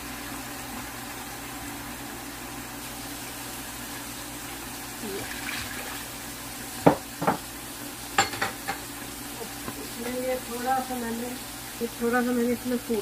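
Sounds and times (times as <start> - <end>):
faint water sound: 3.7 - 6.8.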